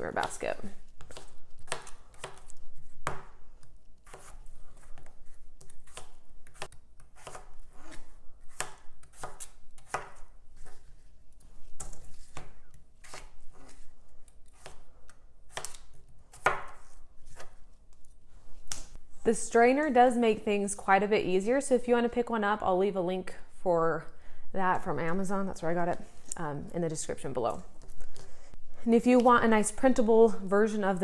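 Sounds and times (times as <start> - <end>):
knife chopping on cutting board: 5.9 - 10.3.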